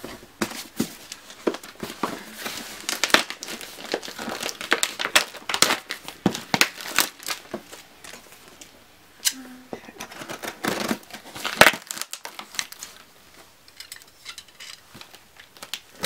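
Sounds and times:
plastic pouch crinkling: 0:02.5 - 0:08.2, 0:10.1 - 0:13.0.

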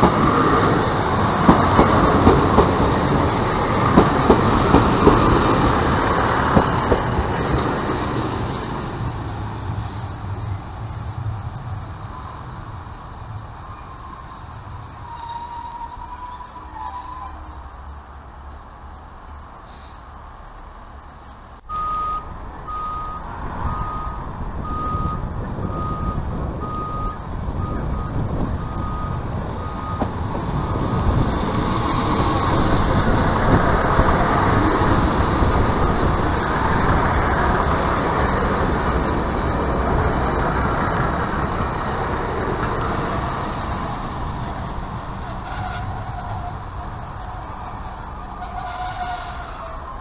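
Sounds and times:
train rumbling past: 0:00.0 - 0:50.0
short beeps: 0:21.7 - 0:25.2.

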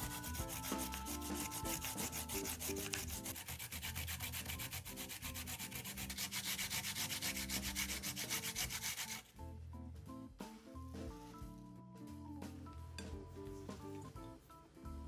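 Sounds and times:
food scraping on hand grater: 0:00.0 - 0:09.3.

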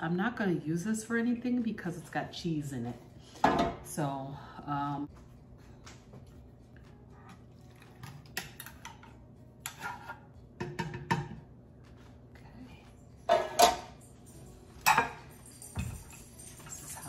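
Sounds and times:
metal pans knocking and clinking: 0:09.6 - 0:11.4, 0:13.3 - 0:17.0
ringing metal clatter: 0:13.5 - 0:17.0.

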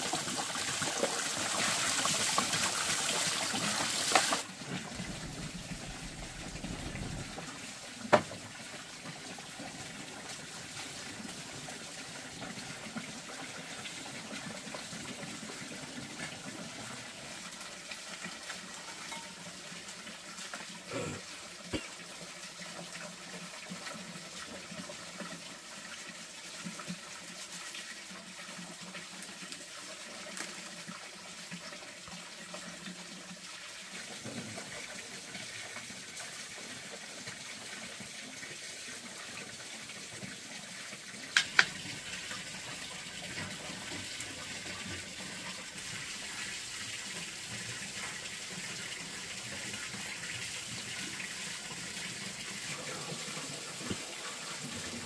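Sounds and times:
water running: 0:00.0 - 0:22.6, 0:34.2 - 0:55.0.

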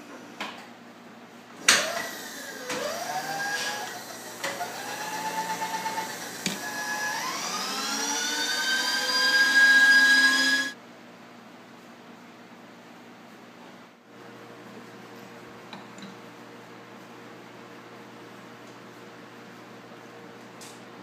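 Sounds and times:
spindle motor whine: 0:01.8 - 0:10.8.

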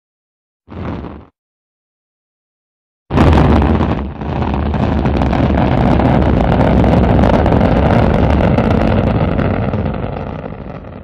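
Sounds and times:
rocket engine thrust roar: 0:03.1 - 0:11.0.

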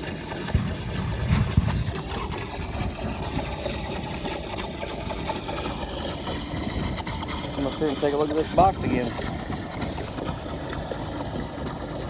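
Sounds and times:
small pump engine running: 0:00.0 - 0:12.0
low thumps: 0:00.5 - 0:03.0.

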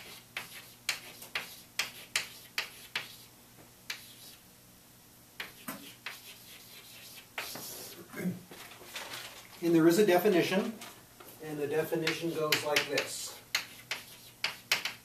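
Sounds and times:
chalk tapping and scratching: 0:00.0 - 0:03.3, 0:03.9 - 0:04.4, 0:05.4 - 0:08.0, 0:12.0 - 0:15.0.

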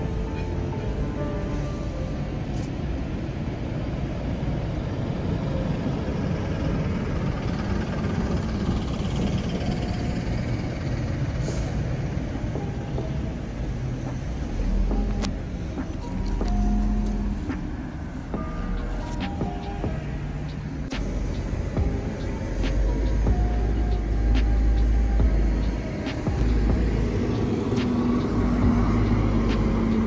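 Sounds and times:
vehicle engine rumble: 0:00.0 - 0:30.0.

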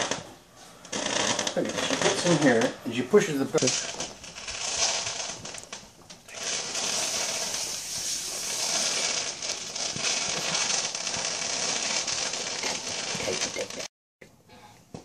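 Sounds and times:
firework crackling: 0:00.0 - 0:13.9
firework hissing: 0:03.3 - 0:13.9.

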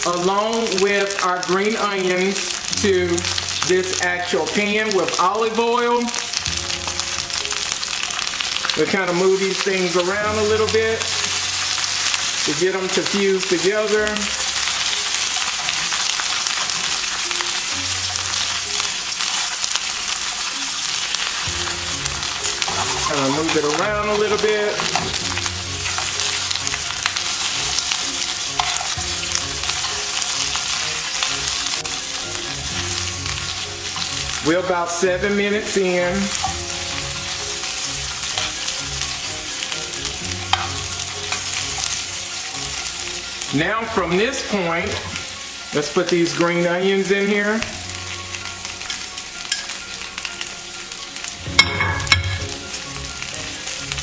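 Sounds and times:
vegetables sizzling in oil: 0:00.0 - 0:54.0
metal tongs clicking on pan: 0:28.6 - 0:29.0, 0:40.4 - 0:41.9, 0:48.9 - 0:49.8.

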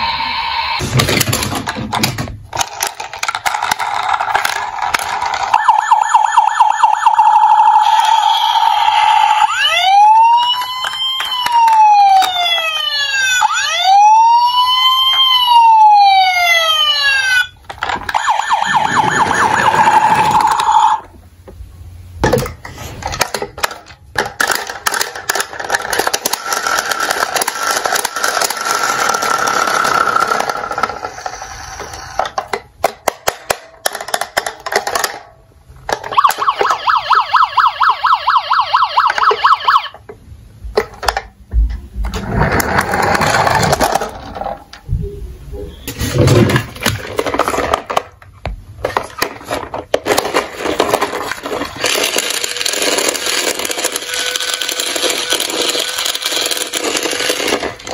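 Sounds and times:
toy police siren wailing: 0:05.0 - 0:21.1, 0:36.0 - 0:40.0.

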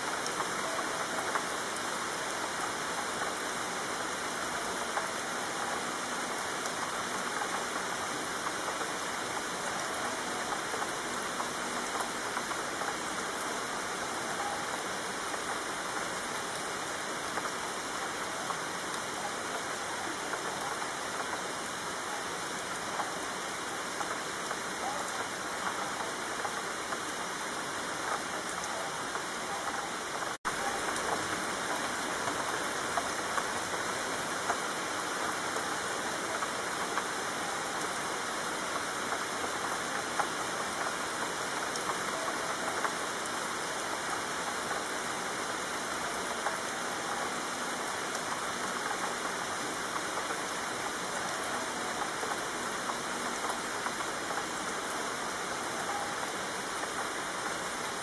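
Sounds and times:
heavy rainfall: 0:00.0 - 0:58.0.

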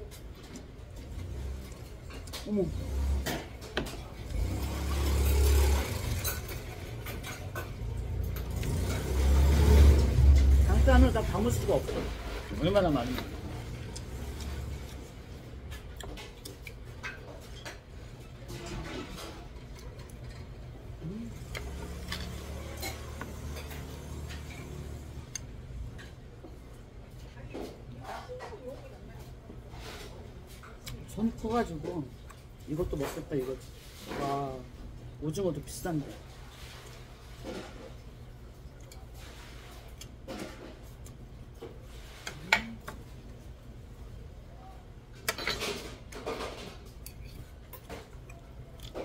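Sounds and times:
dishes and cutlery clinking: 0:05.1 - 0:09.5, 0:21.5 - 0:25.0, 0:45.2 - 0:49.0.

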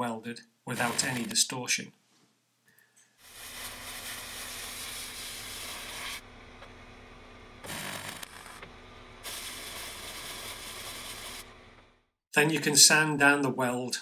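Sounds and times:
compressed air blowgun hissing: 0:03.2 - 0:06.2, 0:09.2 - 0:11.4.

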